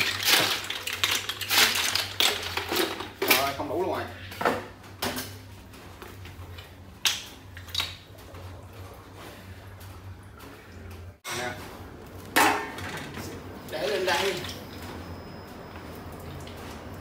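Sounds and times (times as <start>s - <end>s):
metal cooking pot clanking: 12.4s - 13.1s.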